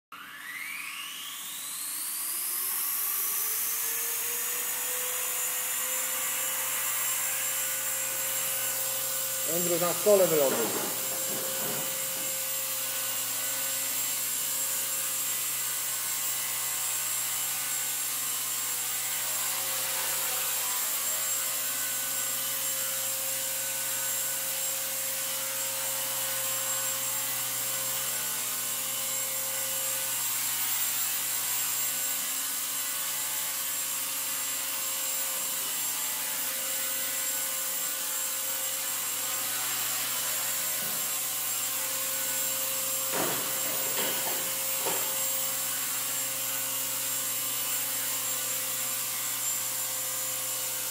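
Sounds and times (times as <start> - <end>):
electric motor whine: 0.2 - 50.9
rotor blades whirring: 6.3 - 13.3.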